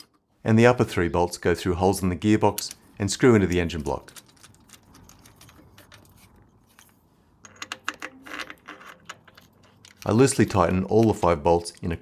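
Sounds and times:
metal bolts clicking and clinking: 2.4 - 12.0.

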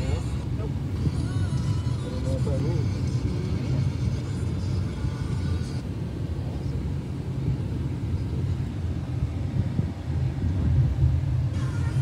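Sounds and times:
car engine rumble inside cabin: 0.0 - 12.0.

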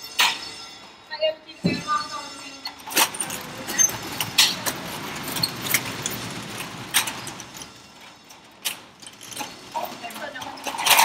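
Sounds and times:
metal security gate rattling: 2.7 - 11.0.

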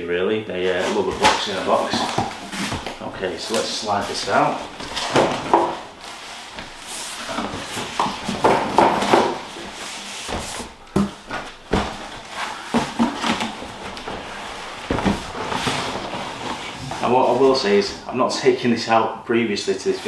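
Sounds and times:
cardboard boxes scraping: 0.6 - 18.0
dull knocks of boxes: 7.3 - 16.0.

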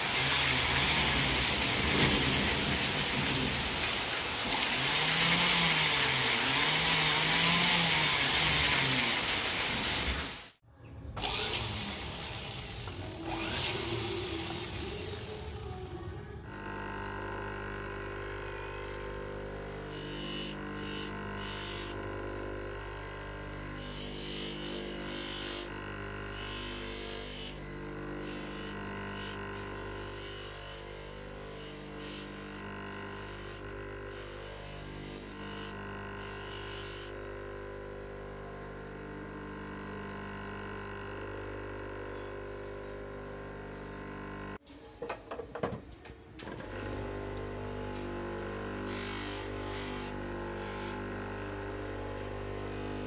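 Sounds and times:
ring grinding on polishing wheel: 0.0 - 10.6, 16.5 - 37.2, 47.7 - 52.6
bench motor humming: 0.0 - 44.6, 46.4 - 53.0.

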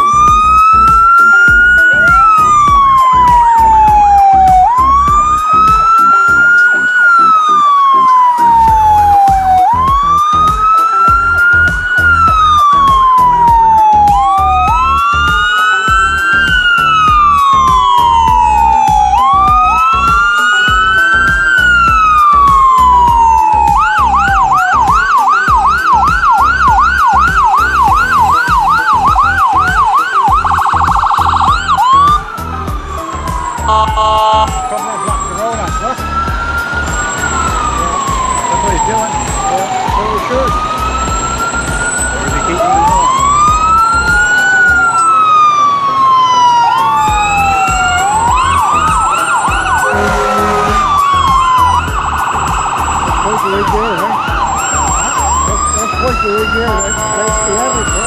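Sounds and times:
fire truck sirens wailing: 0.0 - 58.0
siren rapid warble: 0.0 - 58.0
siren yelp: 0.0 - 58.0.

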